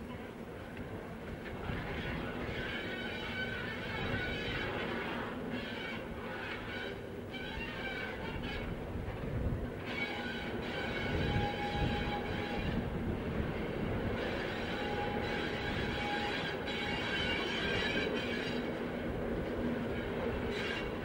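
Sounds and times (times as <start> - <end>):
high wheel squeal: 1.9 - 8.8, 9.8 - 12.9, 14.2 - 18.8, 19.8 - 21.0.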